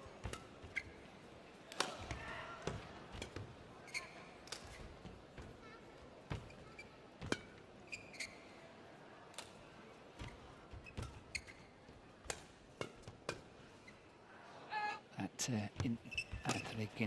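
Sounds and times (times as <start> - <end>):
racket hitting shuttlecock: 0.2 - 0.5, 1.7 - 3.4, 12.2 - 13.5
shoes squeaking on court: 0.2 - 1.0, 3.2 - 4.9, 6.3 - 8.5, 10.2 - 11.9, 15.8 - 17.0.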